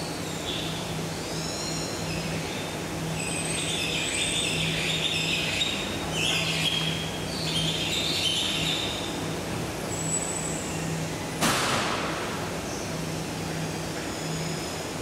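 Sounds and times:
steady low hum: 0.0s - 15.0s
high chirping bird calls: 3.2s - 9.1s.

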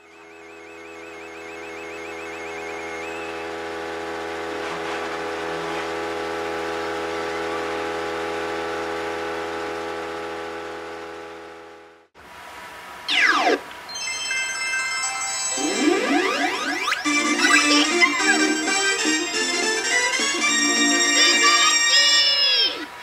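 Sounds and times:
fast repeating electronic chirp: 0.0s - 4.0s, 13.1s - 22.0s
sustained electronic chord: 0.0s - 12.1s, 13.1s - 21.9s.

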